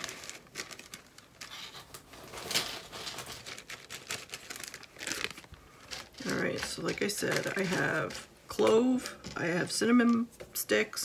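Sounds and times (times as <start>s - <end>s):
plastic bags crinkling: 0.0s - 11.0s.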